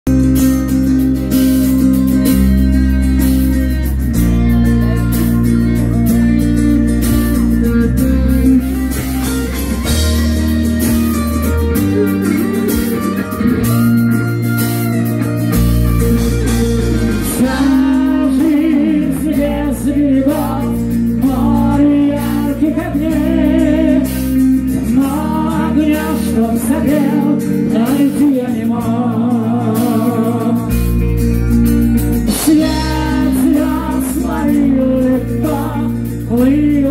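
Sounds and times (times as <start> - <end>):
rock band playing live: 0.0 - 36.9
man singing: 17.0 - 31.1, 32.3 - 36.9.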